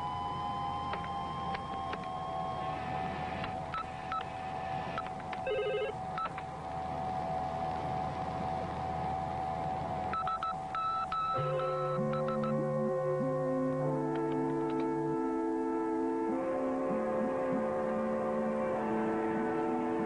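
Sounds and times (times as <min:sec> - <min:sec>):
electronic computer beeps: 0:00.0 - 0:06.4, 0:10.1 - 0:13.0
low synthesizer notes: 0:00.0 - 0:20.0
steady electronic hum: 0:00.0 - 0:20.0.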